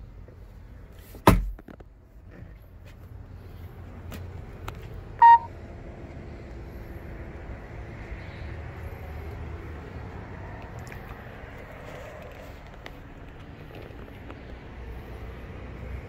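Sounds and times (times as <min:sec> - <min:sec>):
short high electronic beep: 0:05.2 - 0:05.5.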